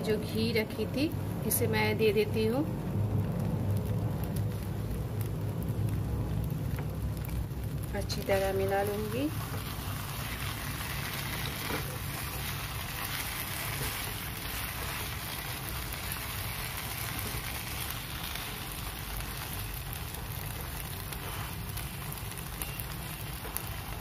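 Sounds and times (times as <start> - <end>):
food sizzling in a pan: 0.0 - 24.0
wooden spatula stirring: 8.9 - 22.2.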